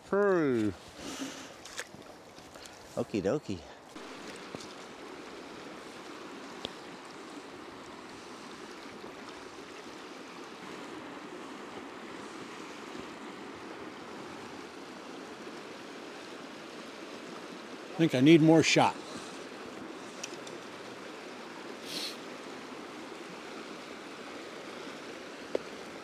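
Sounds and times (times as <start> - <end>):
stream rushing: 0.0 - 26.0.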